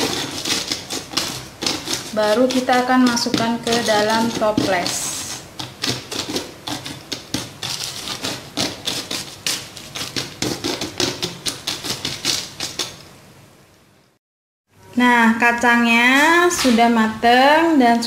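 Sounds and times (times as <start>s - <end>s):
spoon raking fried peanuts: 0.0s - 13.0s.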